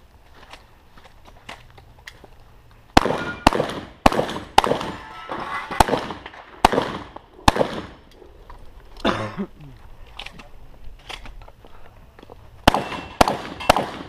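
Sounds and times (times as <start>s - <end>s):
gunshots with echo: 3.0s - 8.0s, 12.7s - 14.0s.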